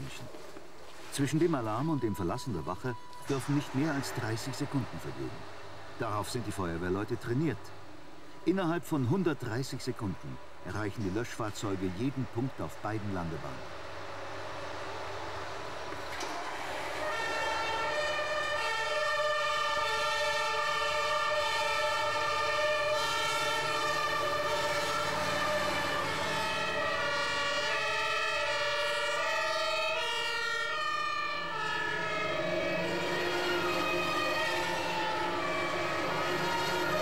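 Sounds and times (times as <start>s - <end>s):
two-tone sirens: 1.2s - 37.0s.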